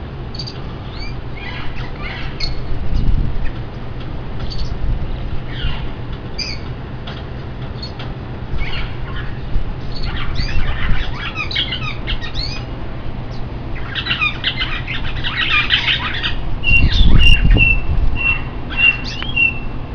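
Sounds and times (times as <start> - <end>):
small birds chirping and squawking: 0.3 - 3.7, 4.4 - 4.8, 5.4 - 19.8.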